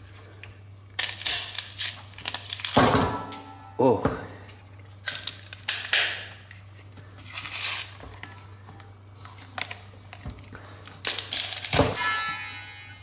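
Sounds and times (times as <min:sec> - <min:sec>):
frozen cardboard crinkling and tearing: 0:00.9 - 0:02.8, 0:04.9 - 0:08.5, 0:09.2 - 0:11.8.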